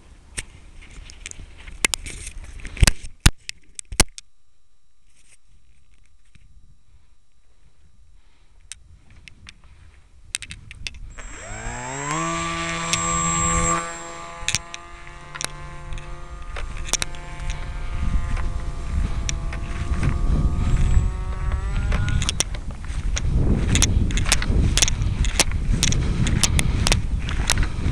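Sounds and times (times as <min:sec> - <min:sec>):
scattered clicks: 0:00.4 - 0:04.3, 0:10.3 - 0:27.9
electric motor and propeller whine: 0:04.9 - 0:27.9
low rumbling noise: 0:10.8 - 0:27.9.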